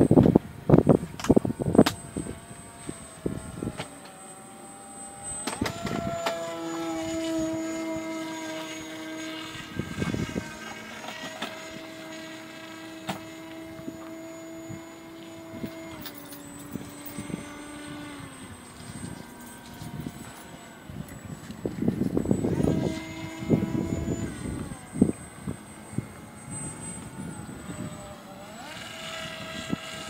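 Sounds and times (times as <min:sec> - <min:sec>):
model plane motor droning: 0:00.0 - 0:30.0.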